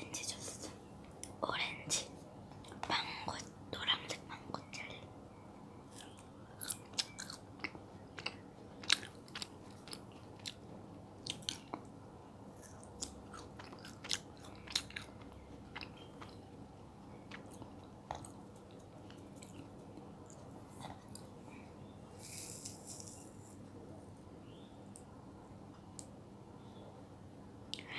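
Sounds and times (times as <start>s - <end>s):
wet chewing clicks and smacks: 5.9s - 10.6s, 11.2s - 11.9s, 12.6s - 16.5s, 17.1s - 21.3s.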